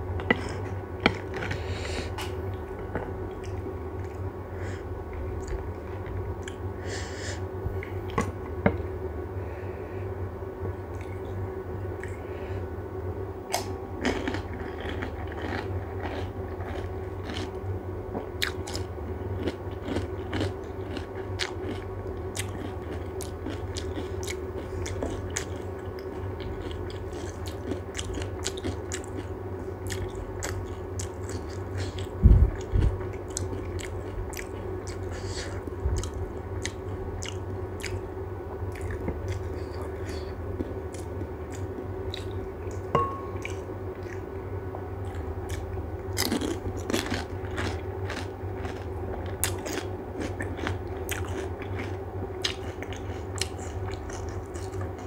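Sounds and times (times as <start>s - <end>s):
low hum: 0.0s - 55.0s
wet chewing: 18.4s - 38.0s, 38.7s - 44.2s, 45.0s - 55.0s.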